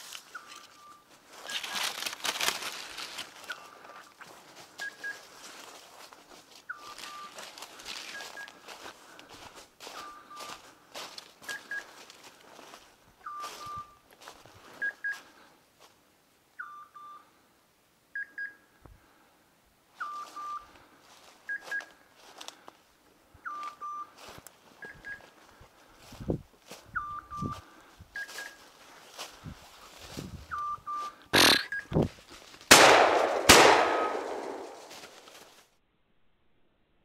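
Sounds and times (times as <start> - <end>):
footsteps through dry leaves: 0.0 - 15.4, 23.6 - 31.2, 32.0 - 35.6
electronic double beeps: 30.6 - 32.0.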